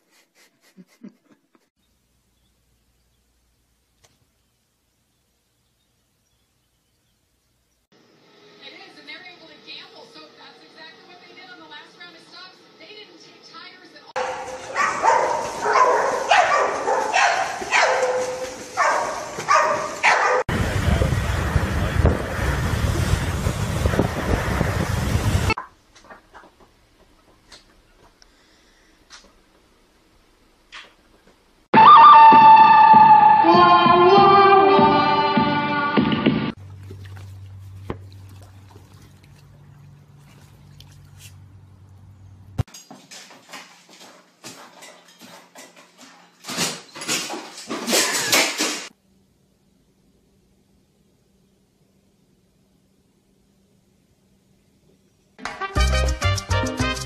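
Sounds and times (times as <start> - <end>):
water dripping and lapping: 14.2 - 20.4, 36.6 - 42.6
dogs barking: 14.2 - 20.5
wind buffeting microphone: 20.5 - 25.6.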